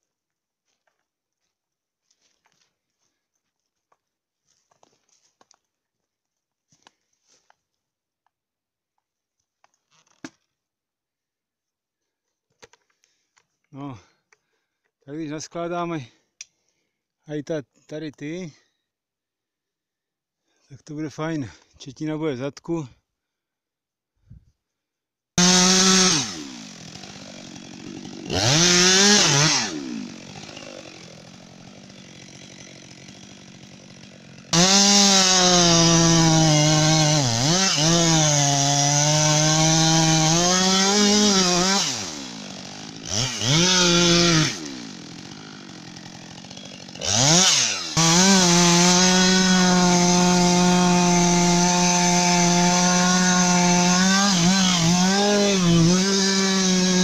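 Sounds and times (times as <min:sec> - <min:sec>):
chainsaw revving and cutting wood: 0:25.4 - 0:57.0.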